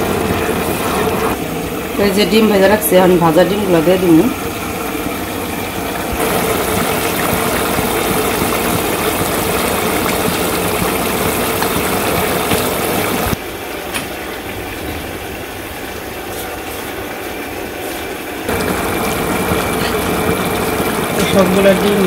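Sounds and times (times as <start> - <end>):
gas burner noise: 0.0 - 22.0
curry bubbling in a pan: 4.5 - 13.4, 15.7 - 22.0.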